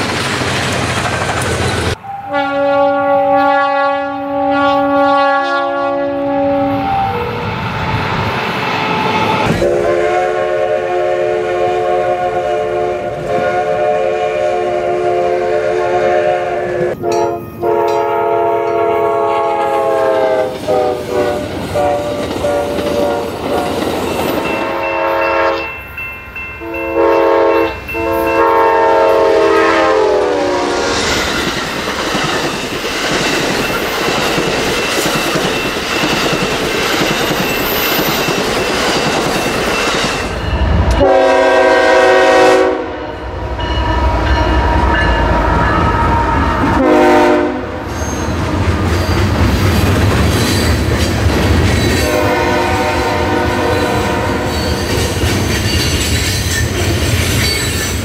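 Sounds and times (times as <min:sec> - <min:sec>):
train cars rumbling on rails: 0:00.0 - 0:02.4, 0:04.4 - 0:25.8, 0:26.6 - 0:58.0
locomotive air horn blasts: 0:02.0 - 0:07.4, 0:09.5 - 0:23.7, 0:24.6 - 0:25.7, 0:26.6 - 0:31.0, 0:41.0 - 0:43.2, 0:46.1 - 0:47.9, 0:52.0 - 0:54.8.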